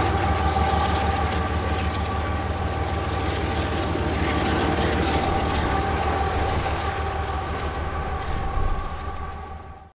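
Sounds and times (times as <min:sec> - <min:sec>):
locomotive engines droning: 0:00.0 - 0:09.9
steady whine: 0:00.0 - 0:09.9.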